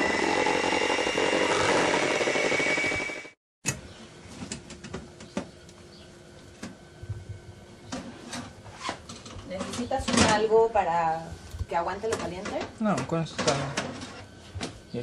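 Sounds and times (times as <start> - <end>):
electric hand mixer running: 0.0 - 3.4.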